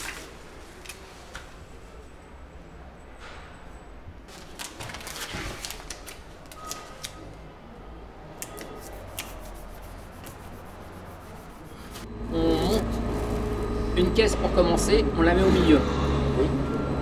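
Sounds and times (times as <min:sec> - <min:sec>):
paper rustling: 0:00.0 - 0:01.5, 0:04.3 - 0:07.3, 0:08.4 - 0:12.1.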